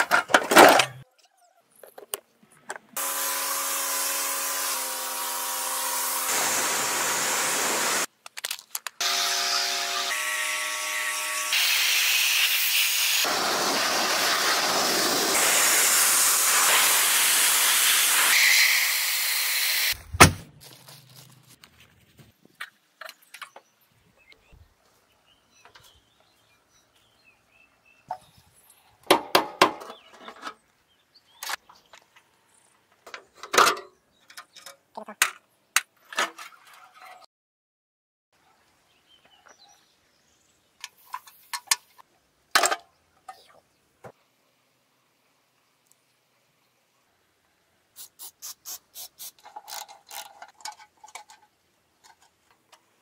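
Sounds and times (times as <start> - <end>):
power tool whining: 3.0 - 8.1, 9.0 - 20.0.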